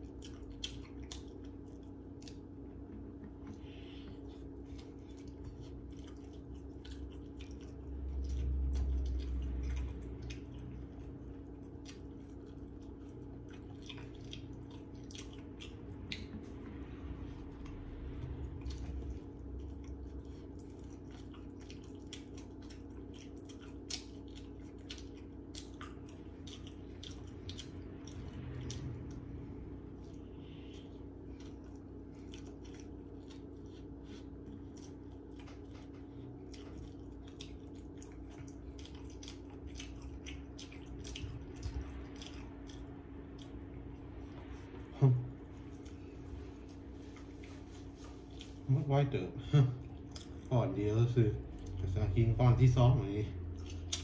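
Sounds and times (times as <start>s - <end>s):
mouth chewing clicks and smacks: 0.0s - 16.8s, 17.5s - 29.4s, 30.0s - 44.6s, 49.8s - 50.5s, 51.4s - 52.1s, 53.4s - 54.0s
steady low hum: 0.0s - 54.0s
low rumble: 13.4s - 20.4s, 26.9s - 32.2s, 39.6s - 54.0s.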